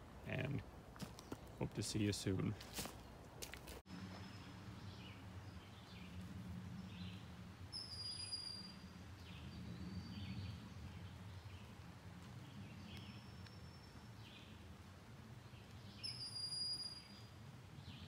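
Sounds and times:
bird chirps: 6.8s - 11.7s, 15.6s - 18.0s.

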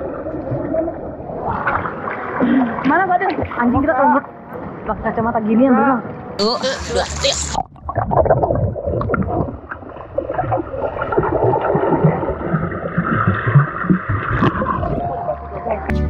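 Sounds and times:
water bubbling and gurgling: 0.0s - 4.2s, 6.4s - 15.6s
muffled underwater noise: 6.4s - 7.6s.

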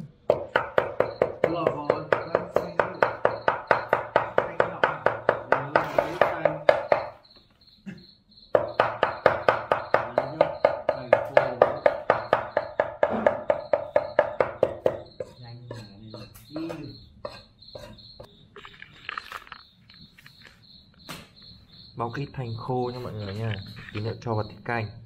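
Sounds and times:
cleaver chopping meat on block: 0.3s - 7.1s.

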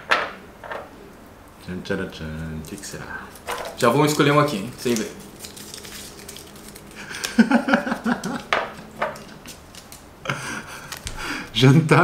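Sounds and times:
paper rustling: 2.6s - 11.5s
fingers rummaging paper slips: 2.6s - 11.6s.

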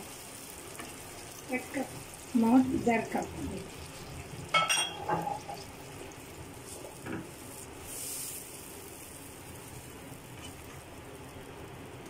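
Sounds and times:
spatula scraping frying pan: 10.4s - 10.7s.

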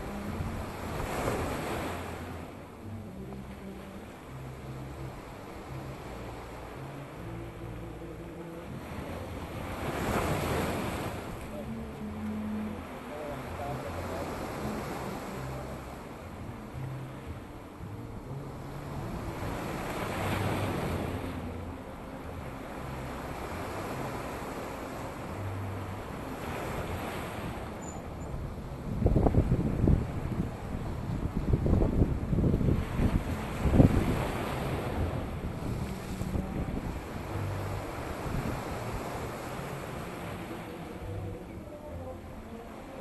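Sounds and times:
wind buffeting microphone: 25.4s - 41.7s.

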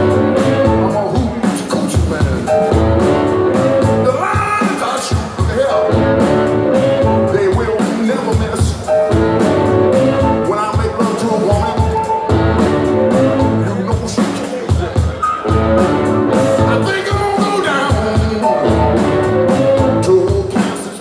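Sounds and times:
upright double bass: 0.0s - 1.4s, 2.1s - 4.2s, 5.5s - 7.7s, 8.6s - 10.9s, 11.6s - 13.9s, 15.5s - 17.3s, 17.9s - 20.3s
man singing: 0.0s - 9.2s, 9.9s - 12.3s, 13.0s - 15.2s, 16.3s - 21.0s
drums: 0.0s - 21.0s
electric guitar: 0.0s - 21.0s.

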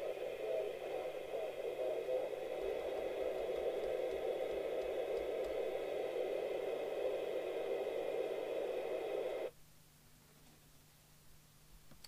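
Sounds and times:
radio static hiss: 0.0s - 9.6s.

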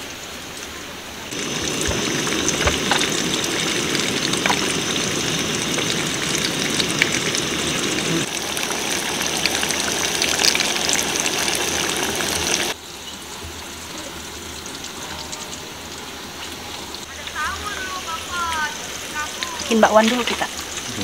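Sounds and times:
water rushing: 0.0s - 21.0s.

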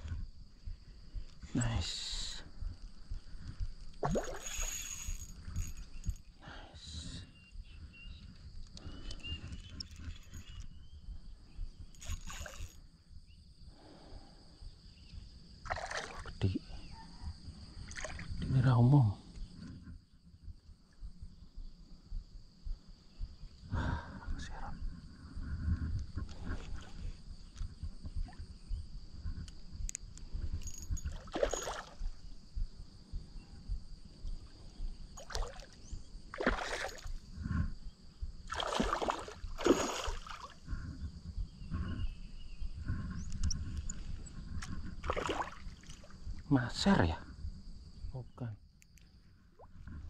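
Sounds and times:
steady low rumble: 0.0s - 4.1s, 19.2s - 31.2s, 32.0s - 35.2s
fish splashing in water: 38.5s - 40.6s.

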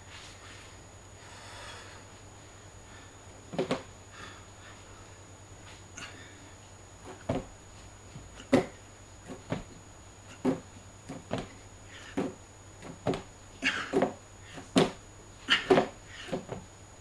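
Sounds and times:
hands slapping plastic crates: 3.5s - 3.9s, 8.3s - 9.7s, 10.3s - 16.7s.

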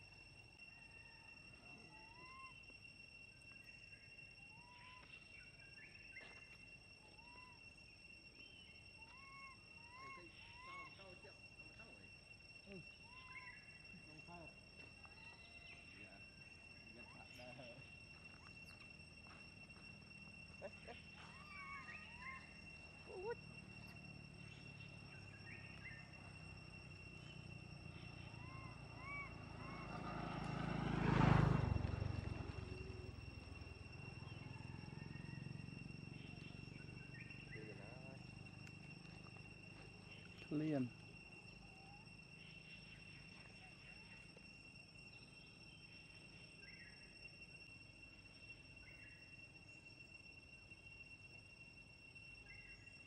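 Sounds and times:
steady high whine: 0.0s - 30.0s
young monkey crying coos: 1.1s - 2.6s, 9.0s - 11.0s, 20.6s - 23.5s
monkey whimpering coo calls: 20.7s - 23.4s.

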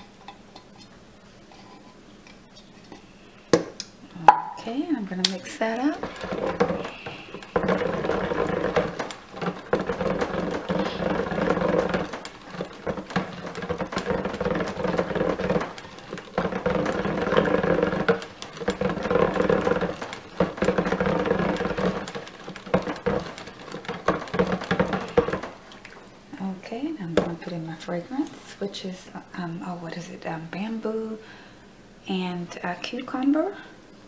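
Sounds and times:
stick blender motor whirring: 5.6s - 26.0s.

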